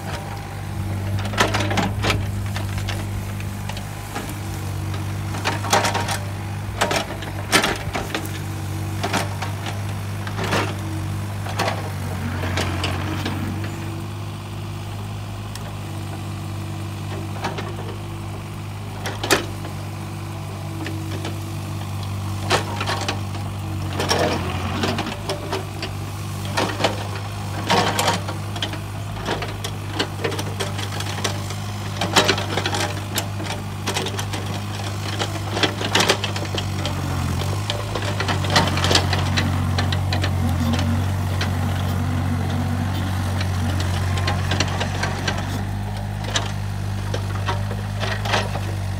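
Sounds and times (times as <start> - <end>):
excavator diesel engine running: 0.0 - 48.9.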